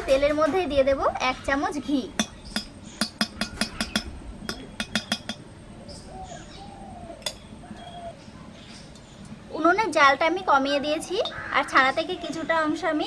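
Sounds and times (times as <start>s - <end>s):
metal spoon clinking on pan: 2.2s - 5.4s.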